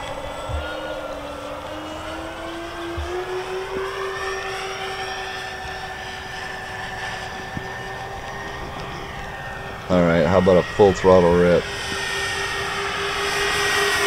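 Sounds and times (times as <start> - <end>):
model plane motors whining: 0.0 - 14.0.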